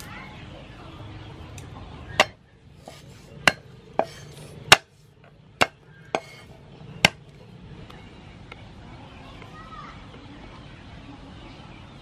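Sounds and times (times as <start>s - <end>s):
cleaver chopping on wooden block: 2.2s - 4.9s, 5.6s - 6.4s, 7.0s - 7.2s.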